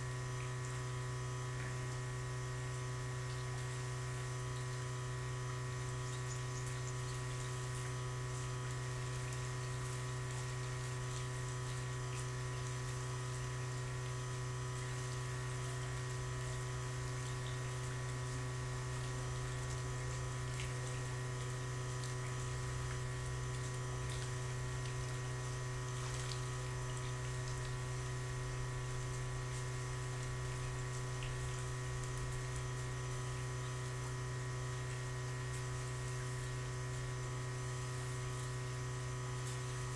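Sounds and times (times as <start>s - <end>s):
low electric hum: 0.0s - 39.9s
small splashes of water: 14.8s - 37.4s.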